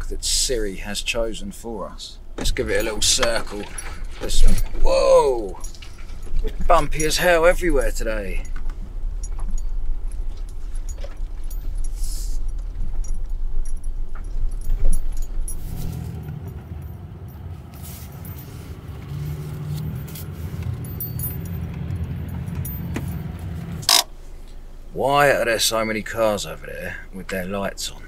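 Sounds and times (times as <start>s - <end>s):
van engine at low revs: 0.0s - 28.0s
loose kit rattling: 2.4s - 12.0s.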